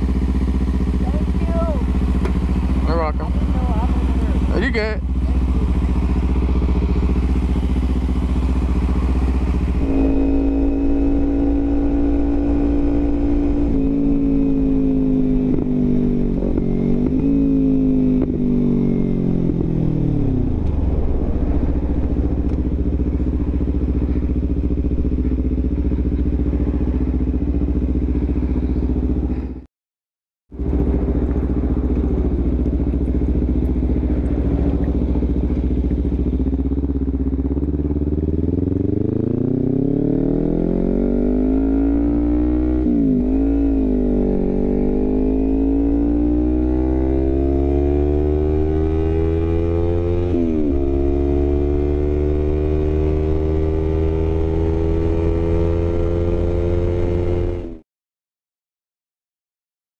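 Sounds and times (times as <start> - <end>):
motorcycle engine running: 0.0 - 29.7, 30.5 - 57.8
wind and road noise: 0.0 - 29.7, 30.5 - 57.8.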